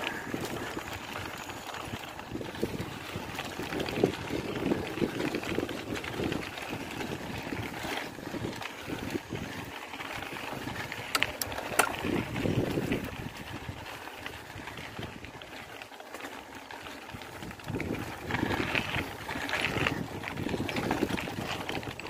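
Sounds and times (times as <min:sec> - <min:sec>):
bicycle rattling: 0:00.0 - 0:22.0
tyres crunching over dirt: 0:00.0 - 0:22.0
sharp clicks: 0:11.1 - 0:12.2.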